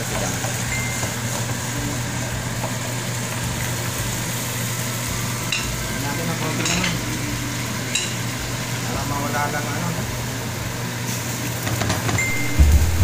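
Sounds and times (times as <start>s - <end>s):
fish sizzling in hot oil: 0.0s - 12.7s
steady low hum: 12.3s - 13.0s.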